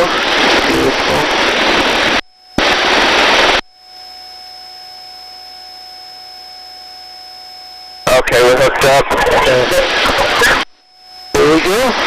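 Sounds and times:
faint electronic hum: 0.0s - 12.0s
thin electronic tones: 2.1s - 12.0s.

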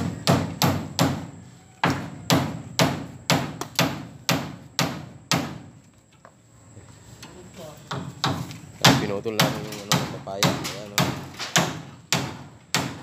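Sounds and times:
machete chopping tree trunk: 1.9s - 5.7s, 8.2s - 13.0s.

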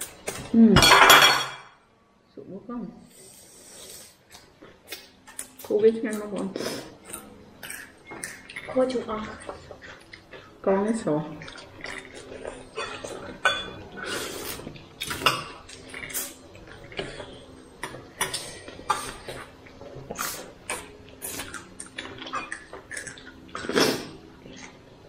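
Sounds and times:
dishes and cutlery clinking: 0.3s - 1.8s, 11.6s - 14.0s, 14.6s - 19.5s.

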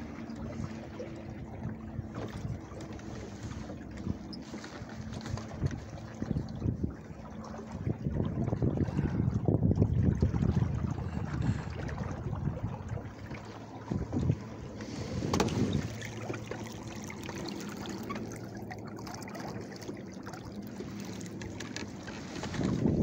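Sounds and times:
wind buffeting microphone: 0.0s - 16.7s, 22.2s - 23.0s
water washing along hull: 0.0s - 23.0s.

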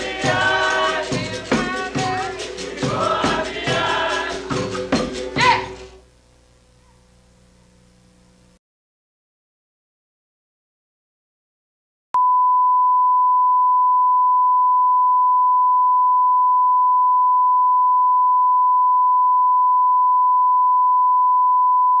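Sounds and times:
steady sine tone: 12.2s - 22.0s.

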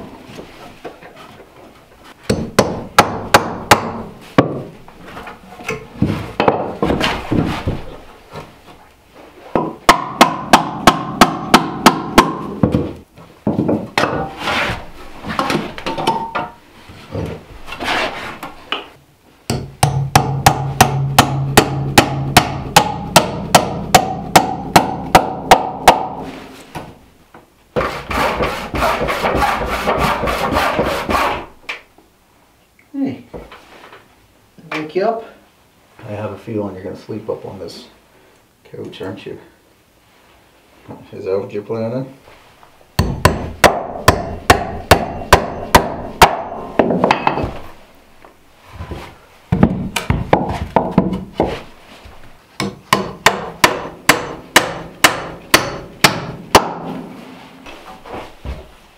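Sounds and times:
handsaw cutting wood: 27.8s - 31.5s.

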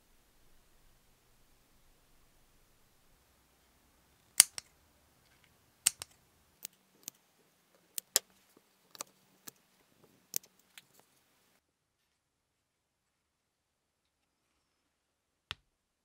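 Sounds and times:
scissors snipping: 4.4s - 4.7s, 5.8s - 7.2s.

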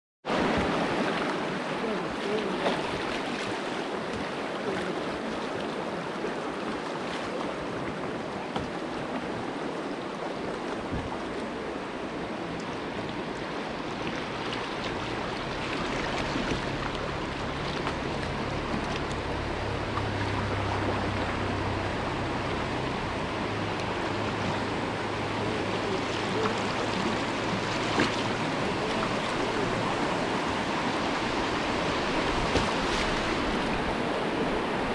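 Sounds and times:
small water splashes: 0.3s - 34.5s
river rapids rushing: 0.3s - 34.9s
low steady rumble: 11.6s - 34.9s.

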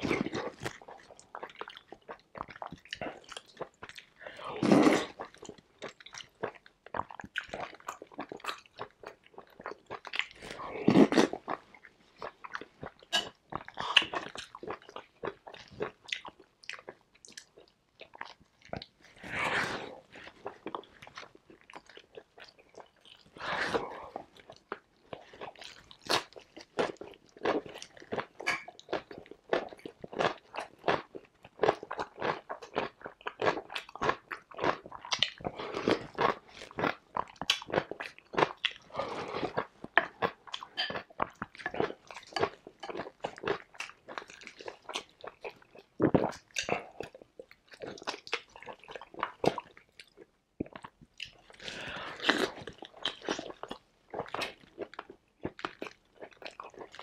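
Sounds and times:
chewing and crunching: 0.0s - 57.0s
slurping soup: 19.1s - 20.6s, 23.3s - 24.3s, 38.8s - 39.7s, 51.5s - 53.5s.

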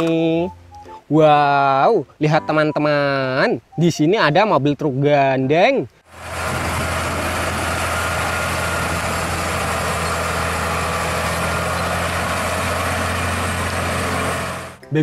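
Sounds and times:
road noise: 6.0s - 14.8s
truck diesel engine droning: 6.1s - 14.8s.

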